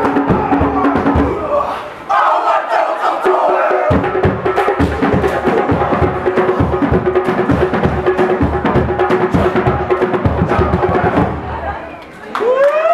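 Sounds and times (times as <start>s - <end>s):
bass drum: 0.0s - 1.5s, 3.9s - 11.6s
wooden slit drums: 3.3s - 11.4s.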